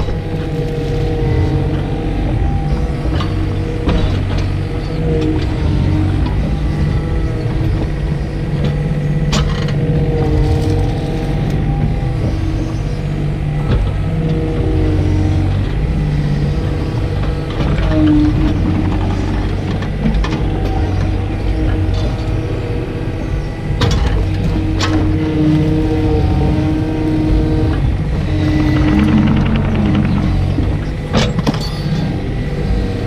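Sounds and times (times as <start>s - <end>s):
excavator diesel engine running: 0.0s - 33.0s
hydraulics whining: 0.0s - 33.0s.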